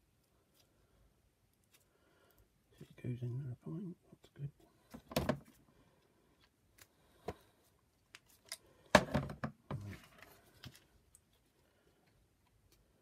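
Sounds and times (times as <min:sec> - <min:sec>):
plastic parts clicking and knocking: 0:04.9 - 0:05.5, 0:08.1 - 0:09.8.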